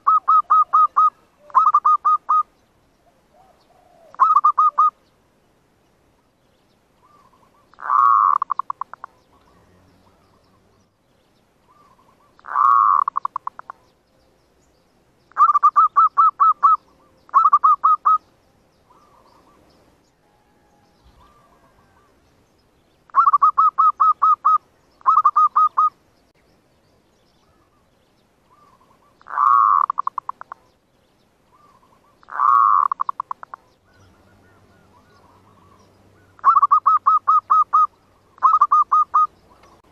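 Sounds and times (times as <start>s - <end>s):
dove cooing: 0.0s - 5.0s, 7.0s - 10.8s, 11.7s - 13.9s, 15.4s - 18.2s, 18.9s - 19.6s, 20.3s - 22.2s, 23.1s - 26.0s, 28.5s - 30.7s, 31.5s - 39.9s.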